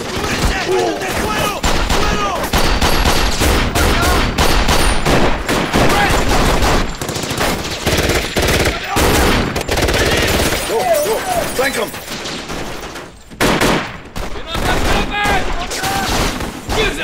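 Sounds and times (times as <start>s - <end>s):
automatic gunfire bursts: 0.0s - 10.7s
pistol shots: 0.0s - 10.8s, 12.2s - 17.0s.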